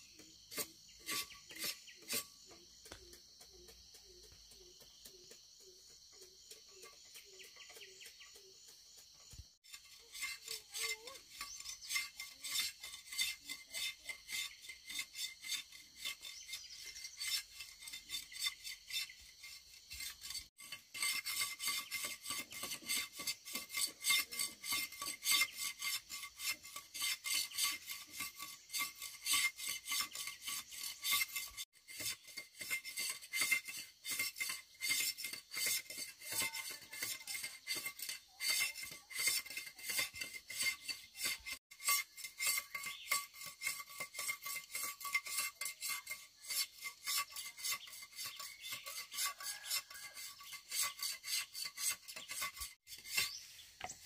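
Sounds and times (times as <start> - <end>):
knife scraping sugarcane rind: 0.0 - 54.0.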